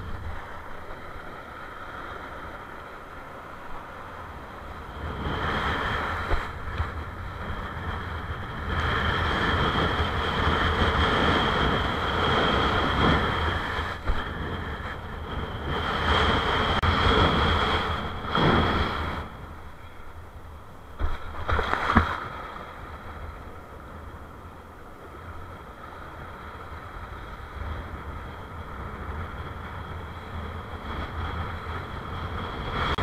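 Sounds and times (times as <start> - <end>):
wind buffeting microphone: 0.0 - 33.0
board splashing through whitewater: 4.2 - 19.8, 20.9 - 24.0.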